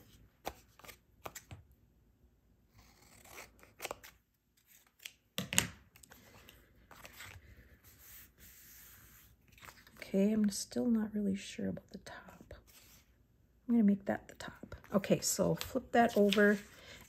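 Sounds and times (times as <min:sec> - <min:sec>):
paper rustling: 0:06.0 - 0:10.0, 0:15.5 - 0:17.0.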